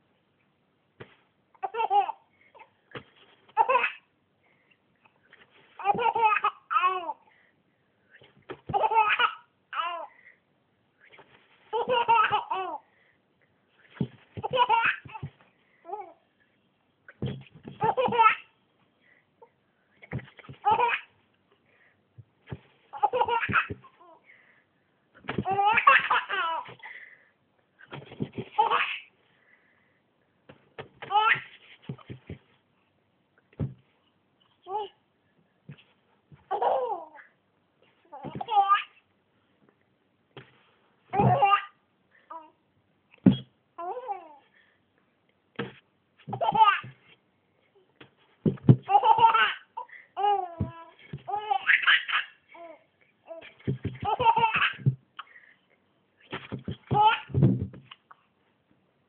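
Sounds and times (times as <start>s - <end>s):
baby laughing: 1.6s - 2.2s, 3.5s - 4.1s, 5.8s - 7.2s, 8.7s - 10.1s, 11.7s - 12.8s, 14.4s - 15.3s, 17.7s - 18.5s, 20.4s - 21.1s, 22.9s - 24.2s, 25.4s - 26.8s, 28.5s - 29.1s, 31.1s - 31.5s, 36.5s - 37.3s, 38.1s - 39.0s, 41.2s - 42.4s, 46.3s - 47.0s, 48.8s - 52.7s, 53.3s - 54.9s, 56.8s - 57.4s.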